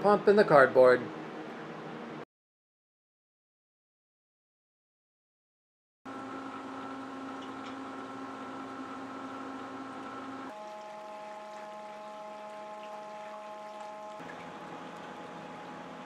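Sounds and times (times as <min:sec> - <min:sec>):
churning water: 0:06.1 - 0:16.0
water pump motor hum: 0:06.1 - 0:16.0.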